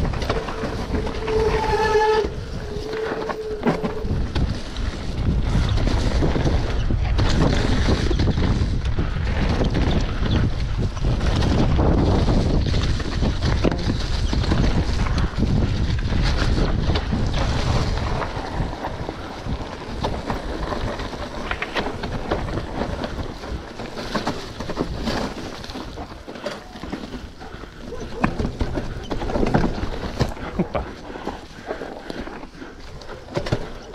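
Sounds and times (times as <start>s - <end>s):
wind on microphone: 0.0s - 23.8s
bike rattling and knocking: 0.0s - 33.9s
tyres on dirt trail: 0.0s - 33.9s.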